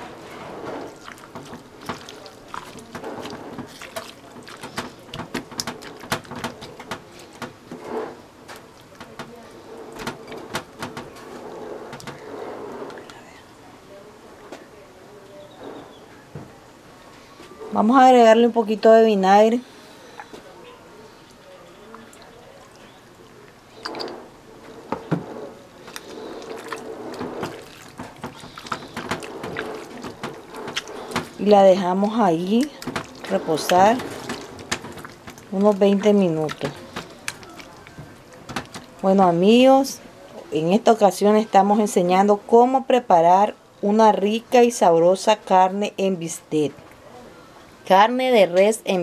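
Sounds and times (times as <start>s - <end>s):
hands squishing marinated meat: 0.8s - 7.4s, 25.8s - 39.1s.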